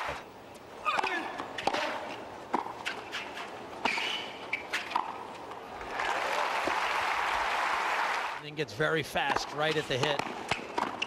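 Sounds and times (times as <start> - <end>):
racket striking tennis ball: 0.8 - 5.3, 9.3 - 11.0
shoe squeaks: 2.8 - 5.0
crowd applause: 5.9 - 8.4.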